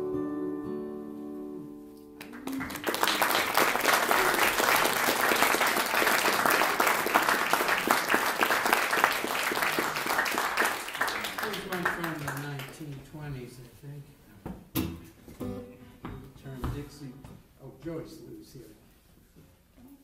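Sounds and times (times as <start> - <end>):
audience applause: 2.2 - 13.0.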